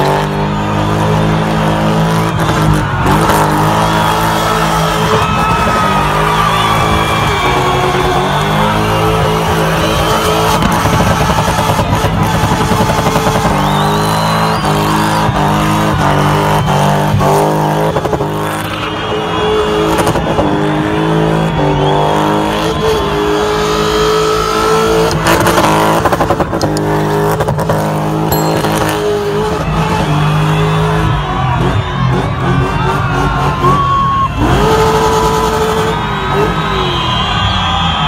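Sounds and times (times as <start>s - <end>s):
car engine revving high: 0.0s - 37.2s
tyres spinning and squealing: 0.6s - 22.5s.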